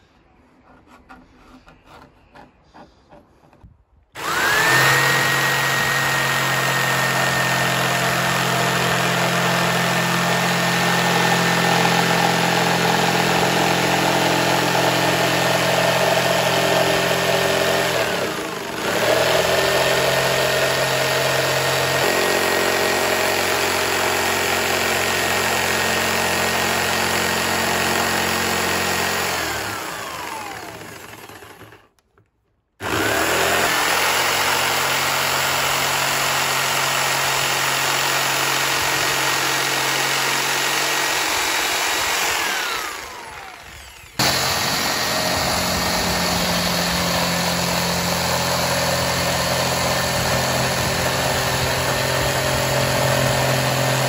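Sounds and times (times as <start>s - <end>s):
electric jigsaw cutting: 4.2s - 32.0s, 32.8s - 54.0s.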